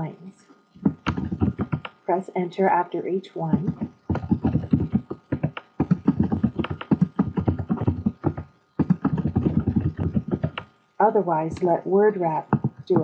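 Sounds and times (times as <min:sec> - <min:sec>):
computer keyboard typing: 0:00.8 - 0:02.0, 0:03.5 - 0:10.7.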